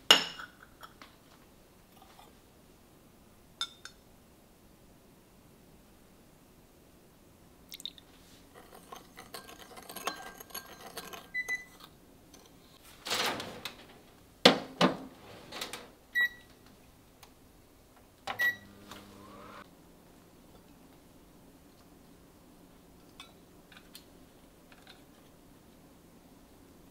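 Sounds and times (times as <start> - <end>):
kitchenware knocks and clinks: 0.0 - 1.0.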